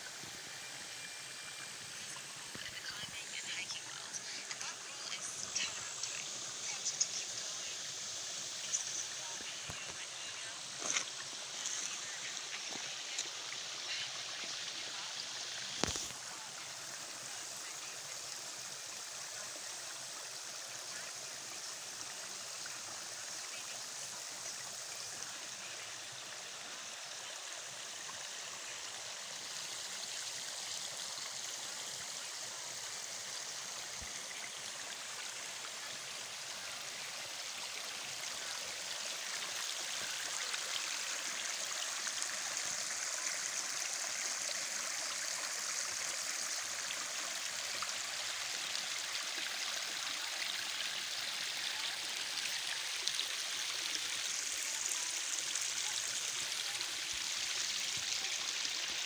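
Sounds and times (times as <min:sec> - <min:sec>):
stream running over stones: 0:00.0 - 0:59.0.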